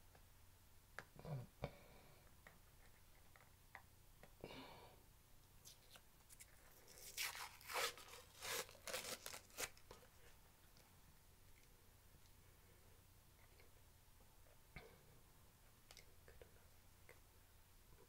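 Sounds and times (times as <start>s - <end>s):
paper tearing and crinkling: 6.9s - 9.8s.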